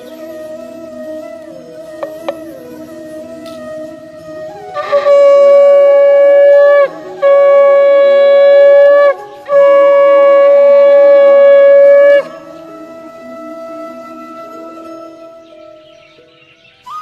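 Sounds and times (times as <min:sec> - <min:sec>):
conch shell blasts: 0:04.7 - 0:12.4.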